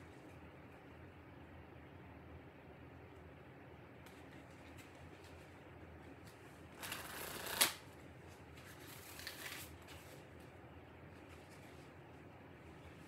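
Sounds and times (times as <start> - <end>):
cards shuffling: 6.2 - 7.9, 8.5 - 10.3
cards snapping: 6.8 - 7.8.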